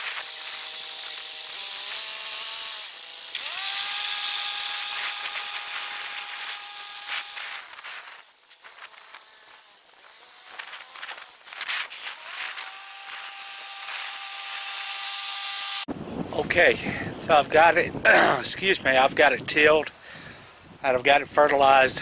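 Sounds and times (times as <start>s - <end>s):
tractor engine and tiller whine: 0.0s - 15.9s.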